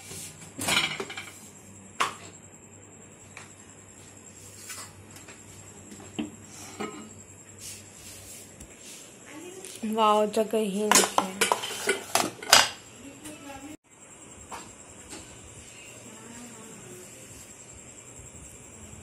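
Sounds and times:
dishes and utensils clinking: 0.6s - 1.4s, 6.6s - 7.2s, 10.9s - 12.8s.

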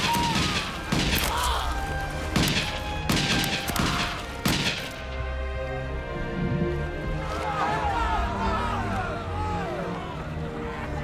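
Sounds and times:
gunfire: 2.4s - 5.0s.

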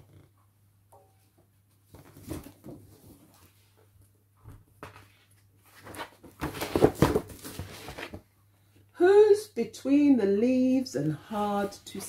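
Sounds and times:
paper pages rustling and crinkling: 4.8s - 8.2s.

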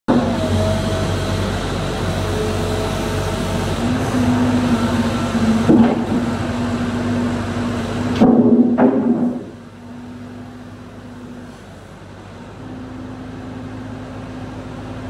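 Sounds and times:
excavator diesel engine running: 0.1s - 15.0s.

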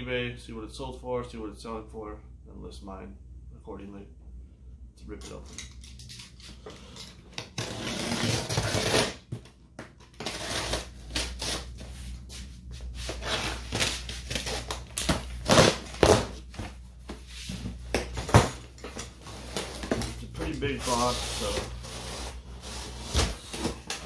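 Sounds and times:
cardboard and packaging rustling: 10.1s - 24.0s
packing tape ripping: 13.2s - 16.4s.

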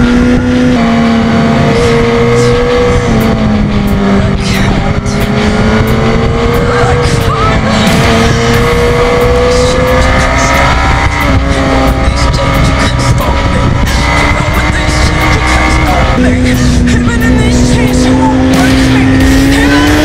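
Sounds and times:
motorcycle engine at high revs: 0.0s - 20.0s
wind and road noise: 0.0s - 20.0s.

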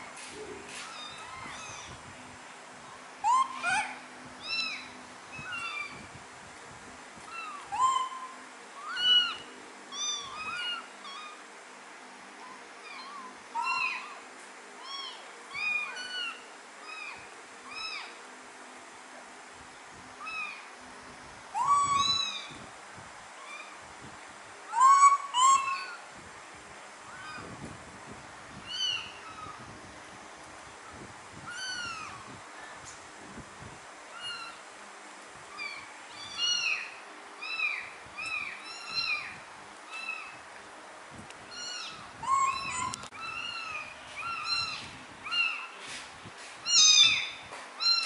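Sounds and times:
kittens mewing: 41.5s - 45.8s.

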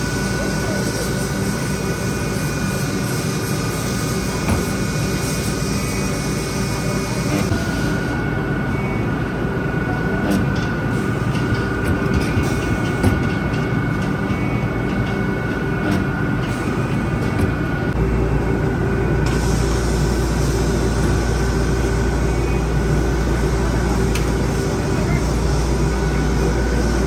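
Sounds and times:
hiss: 0.0s - 8.2s, 19.2s - 22.5s
factory machinery din: 0.0s - 27.0s.

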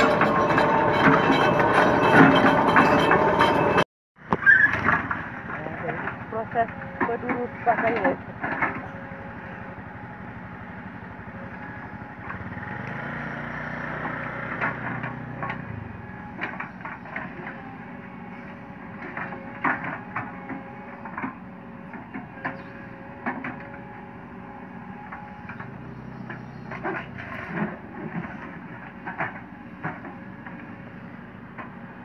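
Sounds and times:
excavator diesel engine running: 0.0s - 32.0s
sharp knocks and cracks on stony ground: 4.2s - 6.2s, 25.1s - 30.7s.

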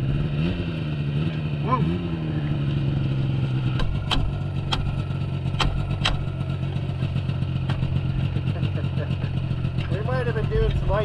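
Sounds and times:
snowmobile engine idling: 1.3s - 11.0s
sharp clicks or knocks: 3.7s - 6.3s.

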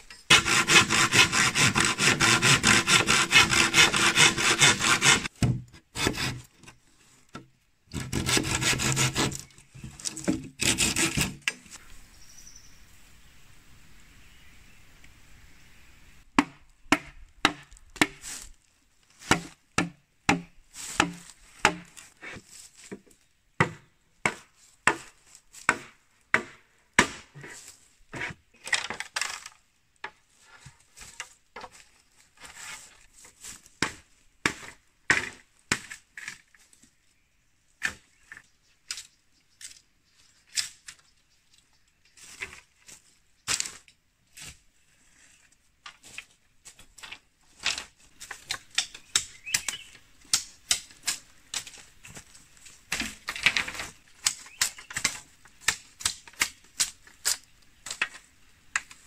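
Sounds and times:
machete splitting bamboo: 7.9s - 11.8s, 48.2s - 51.8s, 52.9s - 58.2s.

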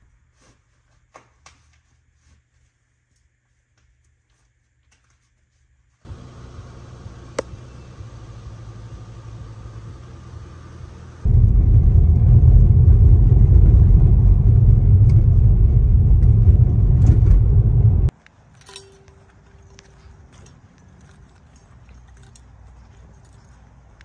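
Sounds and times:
car road and engine rumble: 6.1s - 18.2s.

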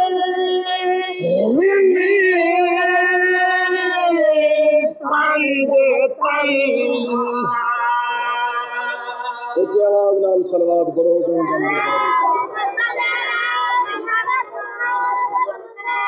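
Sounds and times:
person chanting a lament: 0.0s - 16.0s.

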